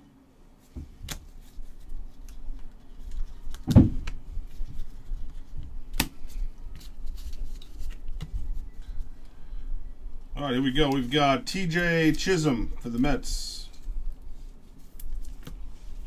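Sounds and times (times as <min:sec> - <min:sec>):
dull thump: 0:03.7 - 0:04.1
cards clicking and flicking: 0:05.3 - 0:08.3.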